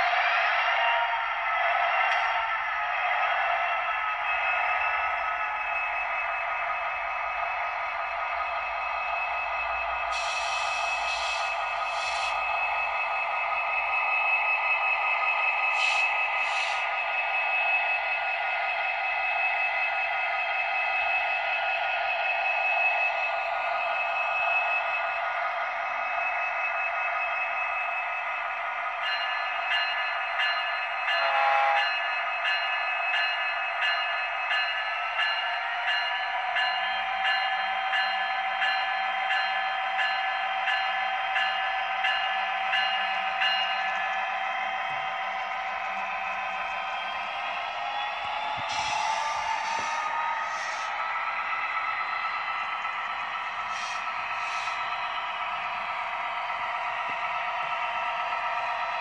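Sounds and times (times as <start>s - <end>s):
model locomotive diesel idle: 9.6s - 13.1s.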